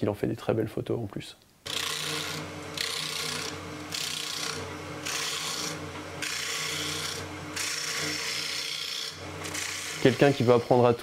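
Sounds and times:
gouge cutting spinning wood: 0:01.7 - 0:11.0
wood lathe motor hum: 0:01.7 - 0:11.0.

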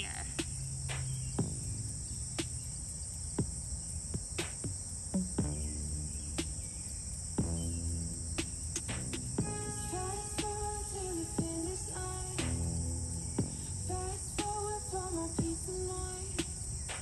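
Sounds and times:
crickets chirring: 0:00.0 - 0:17.0
faint low sustained tones: 0:05.3 - 0:06.8, 0:09.3 - 0:16.0.

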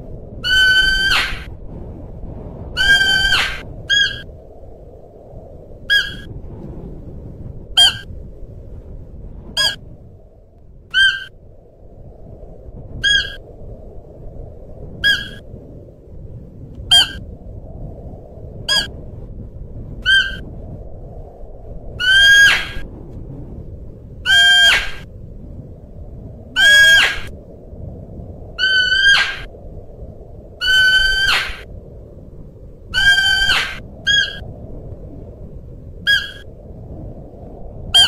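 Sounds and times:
low background rumble: 0:00.0 - 0:38.0
deer calling: 0:10.9 - 0:11.3.

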